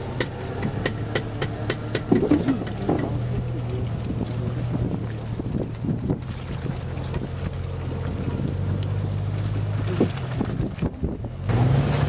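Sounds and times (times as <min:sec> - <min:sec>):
car engine running at low revs: 0:00.0 - 0:12.0
knocks: 0:00.2 - 0:03.2.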